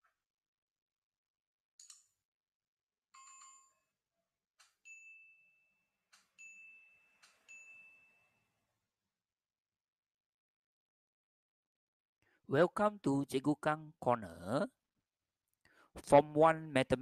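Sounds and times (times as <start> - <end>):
bell chime: 3.2 - 3.8, 4.8 - 5.8, 6.4 - 8.5
high ding: 6.4 - 8.4.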